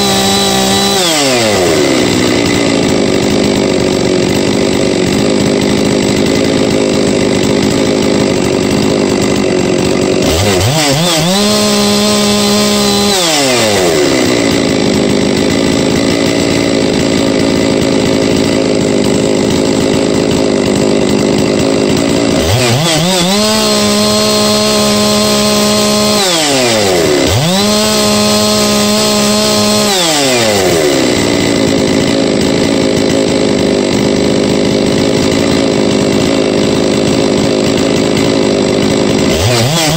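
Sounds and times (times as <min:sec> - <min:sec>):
chainsaw idling and revving: 0:00.0 - 0:39.9.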